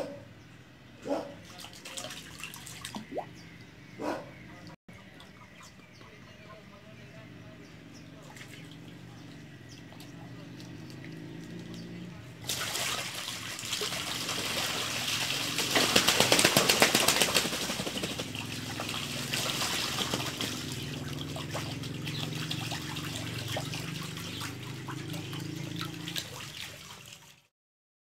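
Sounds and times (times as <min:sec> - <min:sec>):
ducks splashing in water: 0:01.4 - 0:03.4, 0:08.2 - 0:27.5
ducks flapping wings: 0:12.5 - 0:24.6.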